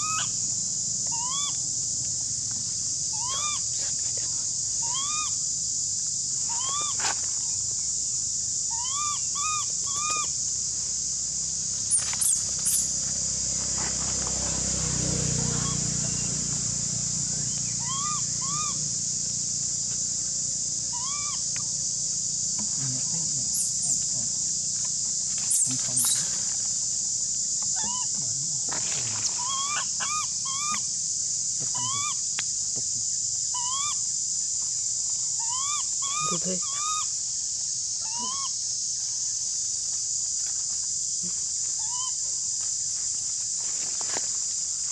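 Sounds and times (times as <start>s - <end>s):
baby monkey squealing: 0.0s - 0.4s, 1.1s - 1.6s, 3.1s - 3.6s, 4.8s - 5.4s, 6.5s - 7.0s, 8.7s - 10.4s, 11.9s - 12.9s, 15.5s - 16.3s, 17.6s - 18.9s, 20.9s - 21.4s, 25.5s - 26.3s, 27.8s - 28.1s, 29.3s - 30.9s, 31.8s - 32.2s, 33.5s - 34.0s, 35.4s - 37.1s, 38.0s - 38.6s, 41.8s - 42.2s
high-pitched insect drone: 0.0s - 44.9s
short arched calls: 11.9s - 13.0s, 17.5s - 18.8s.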